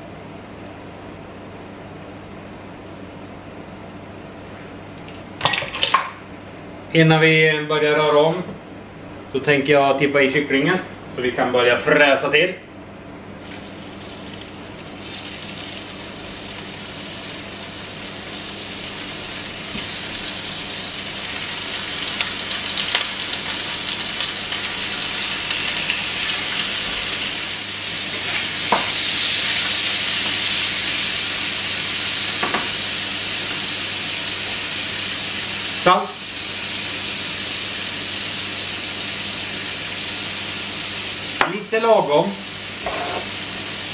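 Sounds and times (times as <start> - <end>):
chicken sizzling in frying pan: 13.4 - 43.9.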